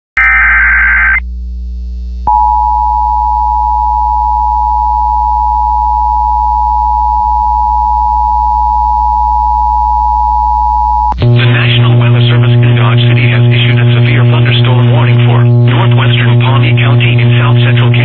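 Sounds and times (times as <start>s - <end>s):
harsh buzzing data burst: 0.2s - 1.2s, 11.2s - 18.0s
low hum: 0.2s - 18.0s
two-tone alert signal: 2.3s - 11.2s.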